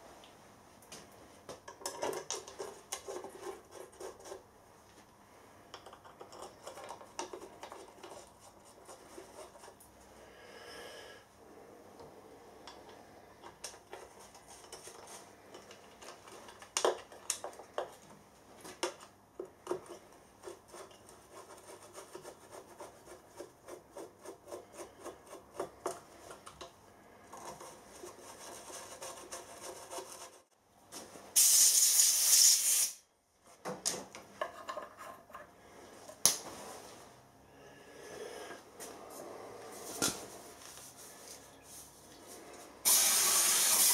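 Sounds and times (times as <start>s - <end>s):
loud hiss: 31.4s - 33.0s, 42.8s - 43.9s.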